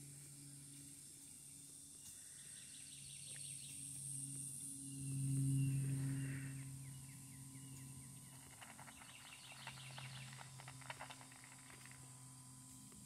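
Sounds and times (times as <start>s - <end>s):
insects buzzing: 0.0s - 13.0s
low steady hum: 0.0s - 13.0s
deer crunching feed: 8.3s - 12.0s.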